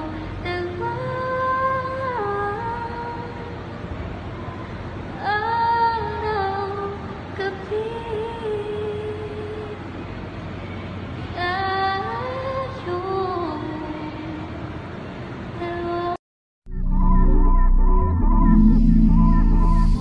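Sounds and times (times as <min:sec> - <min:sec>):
woman singing a slow ballad: 0:00.0 - 0:03.6, 0:05.2 - 0:09.8, 0:11.3 - 0:14.5.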